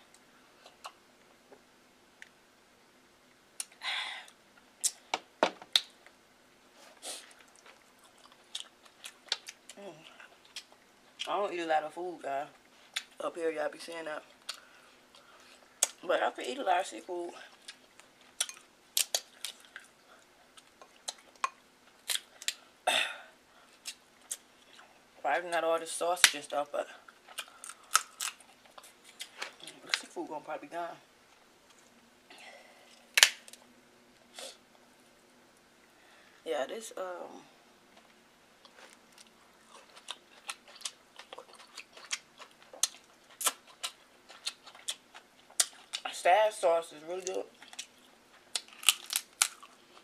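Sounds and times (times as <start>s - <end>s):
breathy sound: 3.8s - 4.3s
crab shells cracking: 17.7s - 19.9s, 27.4s - 29.3s, 33.2s - 33.6s, 47.6s - 49.8s.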